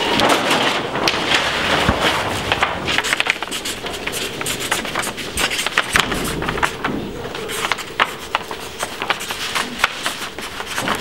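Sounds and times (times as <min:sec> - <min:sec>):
crowd background noise: 0:00.0 - 0:09.9
paper rustling: 0:00.0 - 0:11.0
marker scratching on paper: 0:03.0 - 0:11.0.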